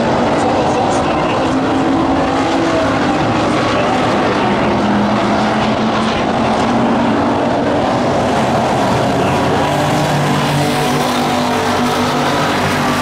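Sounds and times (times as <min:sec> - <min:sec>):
race car engines droning: 0:00.0 - 0:13.0.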